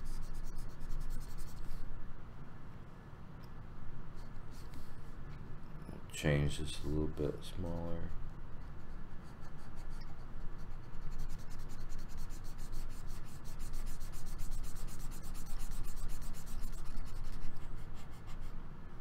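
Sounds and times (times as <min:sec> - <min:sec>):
stylus scrubbing on drawing tablet: 0:00.0 - 0:01.9, 0:08.0 - 0:18.6.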